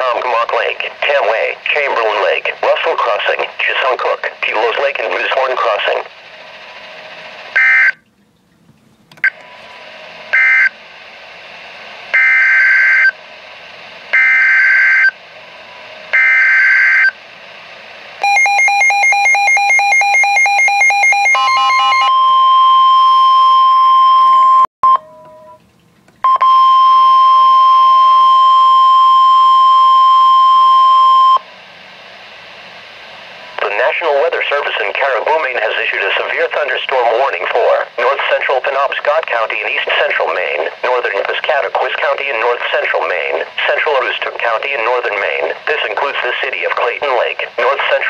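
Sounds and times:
steady warning alarm tone: 6.5s - 8.1s, 10.3s - 10.8s, 12.1s - 13.2s, 14.1s - 15.2s, 16.1s - 17.2s, 18.2s - 25.6s
fast pulsing alarm beep: 7.6s - 8.0s, 12.2s - 13.1s, 14.2s - 15.1s, 16.2s - 17.1s, 18.2s - 25.1s.

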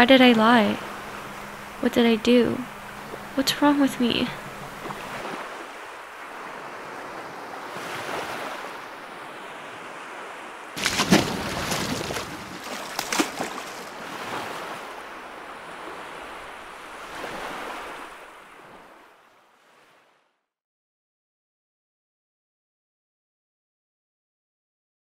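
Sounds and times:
small waves washing on beach: 0.0s - 20.3s
feet splashing through water: 10.8s - 16.2s.

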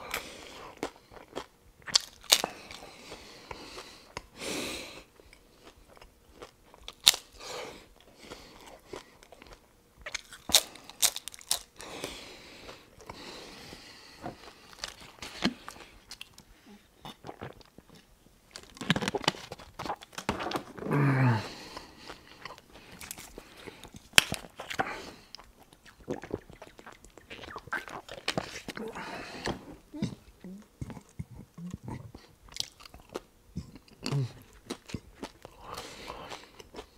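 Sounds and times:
crunching of crispy shells: 0.1s - 3.2s, 5.1s - 13.1s, 14.3s - 16.5s, 17.3s - 29.0s
person humming: 20.8s - 21.7s, 28.7s - 32.2s, 33.6s - 34.4s
wet chewing: 21.5s - 36.9s.

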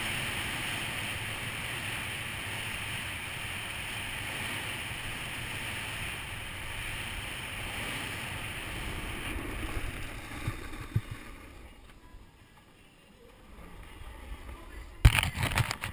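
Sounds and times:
wind rushing: 0.0s - 12.3s
snowboard sliding over snow: 0.0s - 15.9s.

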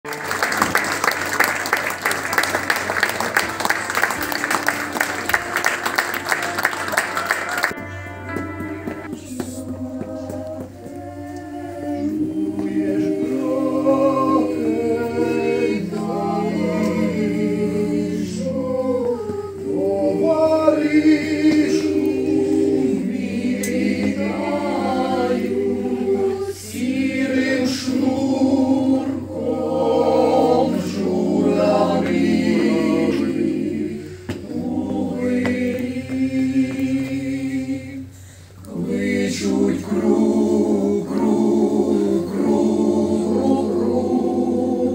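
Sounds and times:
mixed choir singing a cappella: 0.2s - 7.8s, 9.0s - 44.9s.

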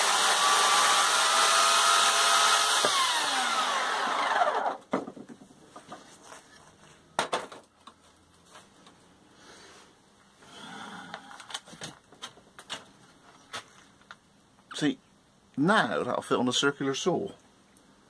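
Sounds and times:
wood pieces knocking: 4.8s - 6.1s, 7.2s - 7.8s.

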